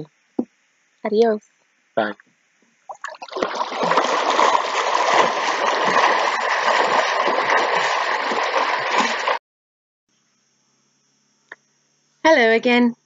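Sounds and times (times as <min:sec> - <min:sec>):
water splashing and sloshing: 0:02.9 - 0:09.4.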